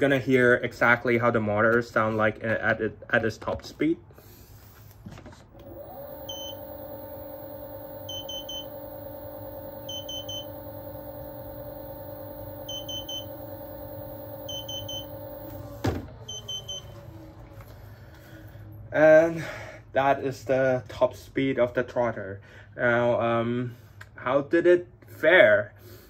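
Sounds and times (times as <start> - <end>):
electric motor whine: 5.5 - 16.0
quick triple beeps: 6.1 - 15.6.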